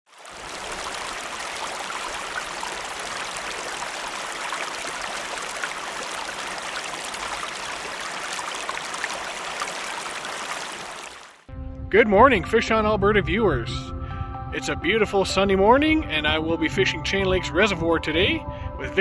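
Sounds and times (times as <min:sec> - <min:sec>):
stream water running: 0:00.1 - 0:11.5.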